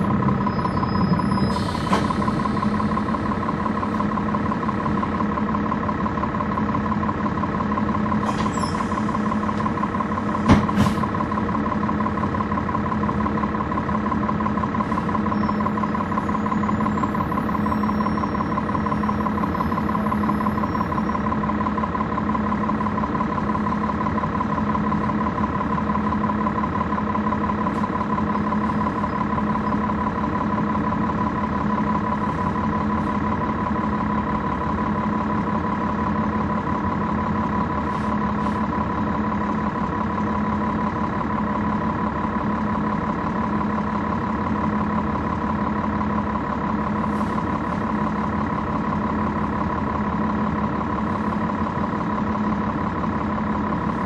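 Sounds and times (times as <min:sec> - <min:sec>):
bus diesel engine running: 0:00.0 - 0:54.0.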